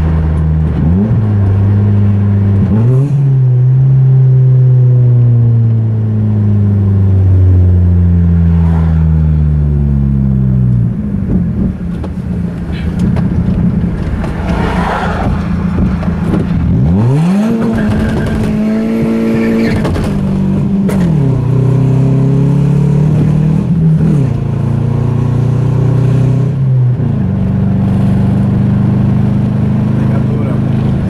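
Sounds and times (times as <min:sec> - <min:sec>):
car engine revving: 0:00.0 - 0:31.0
exhaust crack: 0:10.6 - 0:21.5.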